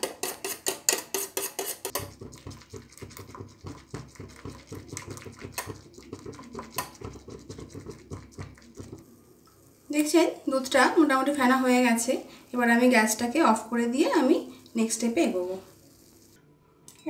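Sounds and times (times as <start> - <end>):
whisk clinking against a pan: 0.0 - 9.0.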